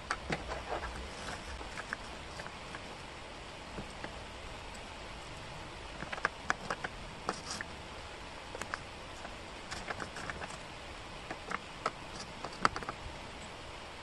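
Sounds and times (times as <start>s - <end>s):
wooden puzzle pieces clicking: 5.9s - 7.7s, 8.6s - 10.6s, 11.2s - 13.0s.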